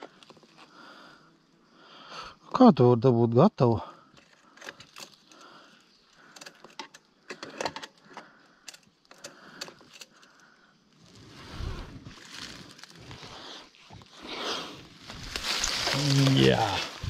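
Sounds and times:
bicycle parts clicking and rattling: 4.1 - 10.4.

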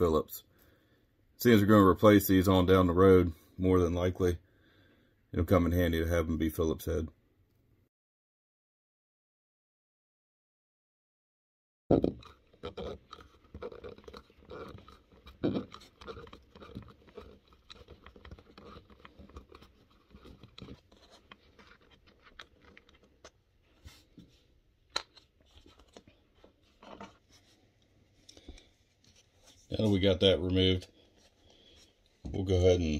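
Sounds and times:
screwdriver scraping and clicking: 12.2 - 23.4.

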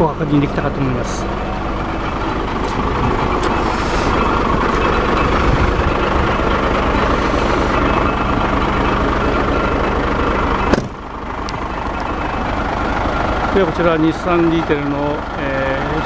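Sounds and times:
diesel truck engine idling: 0.0 - 16.0.

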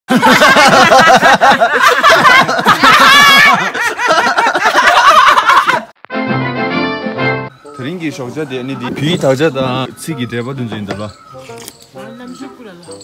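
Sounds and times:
people laughing: 0.1 - 6.0
high-pitched squeal of laughter: 1.9 - 5.9.

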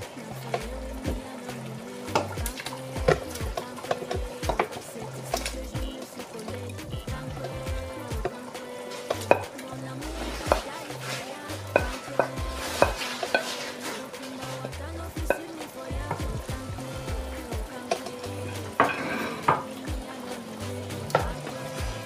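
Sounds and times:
background music with bass line: 0.0 - 22.0
spatula clinking on plate and pot: 10.3 - 15.5, 17.8 - 19.8
spatula scraping a plate: 12.6 - 14.7.

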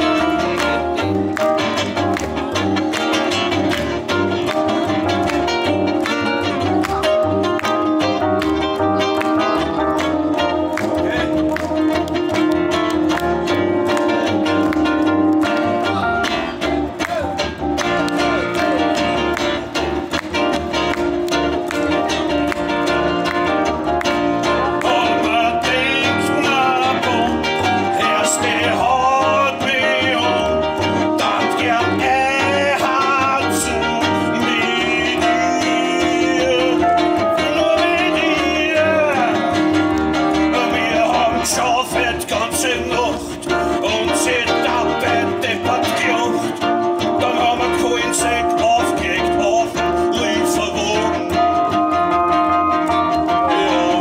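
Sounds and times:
man singing: 0.0 - 12.4, 24.4 - 54.0
live band playing: 0.0 - 54.0.

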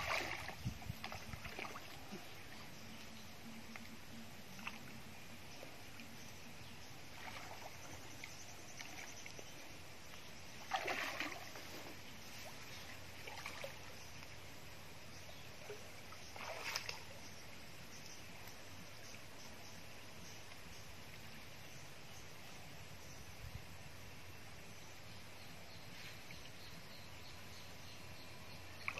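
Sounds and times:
water splashing and sloshing: 0.0 - 14.6, 15.2 - 17.5, 28.7 - 28.9.

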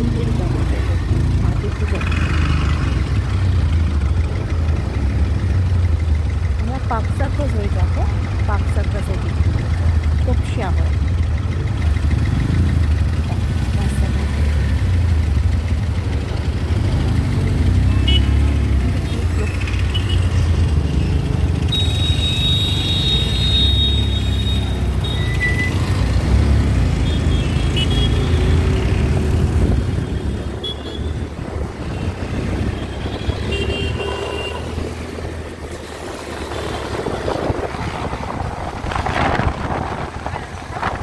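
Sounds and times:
motorbike engine and road rumble: 0.0 - 41.0
vehicle horns tooting: 17.9 - 18.6, 21.6 - 25.8, 27.0 - 29.0, 29.9 - 34.9.

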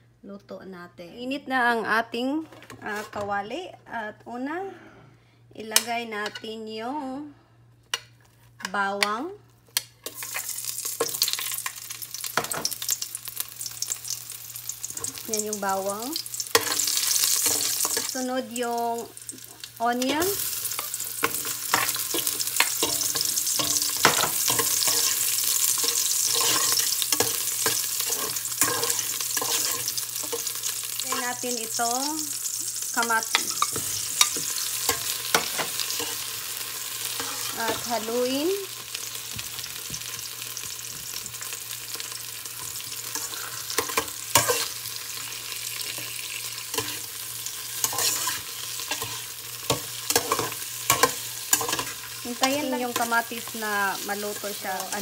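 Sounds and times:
onion sizzling in hot oil: 10.0 - 55.0
metal spoon scraping a pot: 21.2 - 30.5, 47.8 - 49.2.

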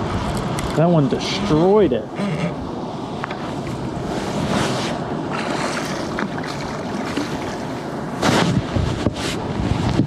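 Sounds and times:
wind on microphone: 0.0 - 10.0
water splashing: 5.3 - 8.0.

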